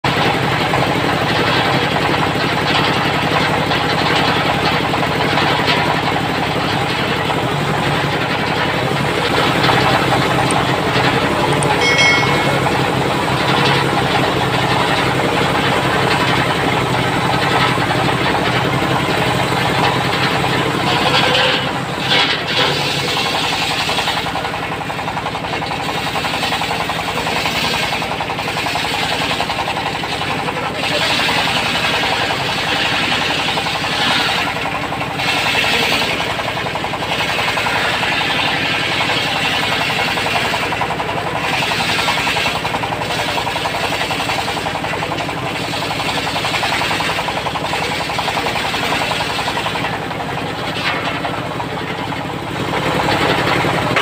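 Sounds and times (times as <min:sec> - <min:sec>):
diesel engine knocking: 0:00.0 - 0:54.0
circular saw blade spinning: 0:11.8 - 0:14.3.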